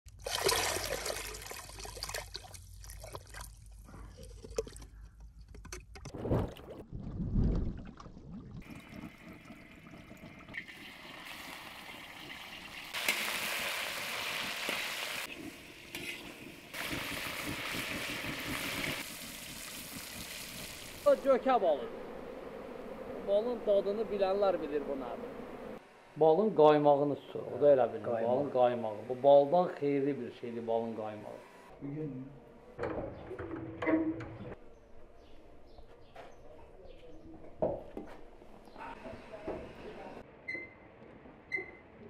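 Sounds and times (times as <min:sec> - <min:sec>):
water splashing and trickling: 0:00.1 - 0:21.8.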